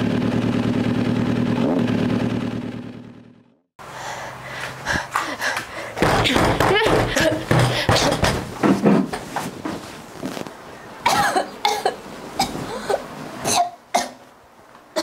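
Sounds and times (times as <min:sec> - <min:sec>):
woman coughing and retching: 0:11.0 - 0:14.2.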